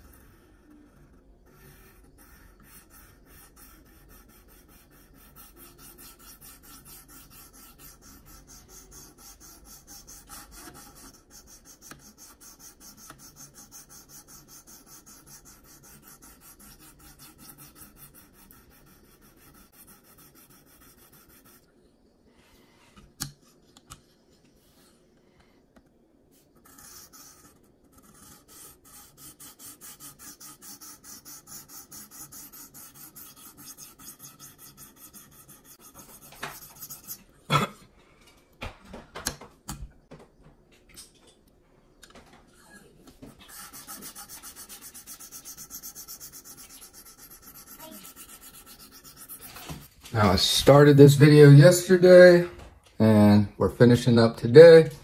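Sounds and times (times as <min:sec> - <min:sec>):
sharpening stone rasping on knife: 0:28.1 - 0:37.2, 0:43.5 - 0:49.5.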